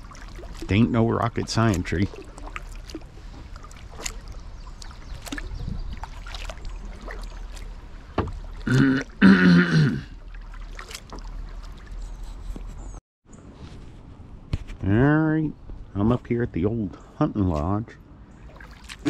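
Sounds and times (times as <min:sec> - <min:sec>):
paddle dipping into water: 0:00.0 - 0:09.3, 0:10.1 - 0:12.8, 0:18.4 - 0:19.0.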